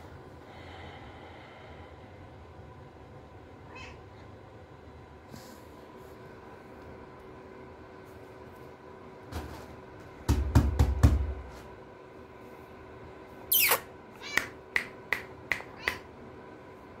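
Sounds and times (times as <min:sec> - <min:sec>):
cat meowing: 0:03.7 - 0:04.2, 0:13.6 - 0:14.6, 0:15.8 - 0:16.0.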